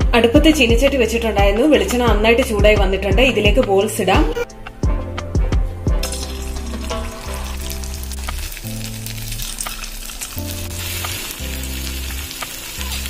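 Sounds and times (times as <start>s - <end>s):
background music with bass line: 0.0s - 13.0s
dough sizzling in hot oil: 6.0s - 13.0s.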